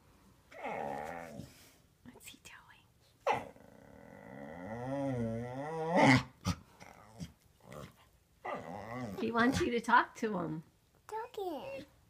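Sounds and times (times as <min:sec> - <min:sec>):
dog howling vocal: 0:08.4 - 0:09.2.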